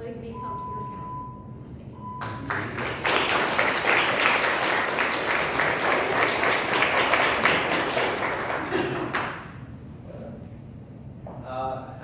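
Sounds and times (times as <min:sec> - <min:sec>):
short steady beep: 0:00.3 - 0:02.7
group of people applauding: 0:02.2 - 0:09.6.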